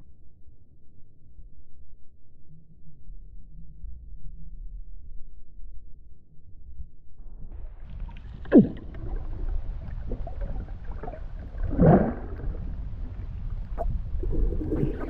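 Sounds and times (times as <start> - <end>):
steady low rumble: 0.0 - 15.0
water swishes: 7.4 - 15.0
water sloshing and splashing: 7.8 - 15.0.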